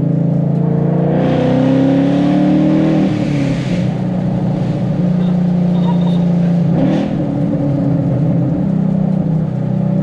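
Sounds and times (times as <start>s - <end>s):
car exhaust under acceleration: 0.0s - 10.0s.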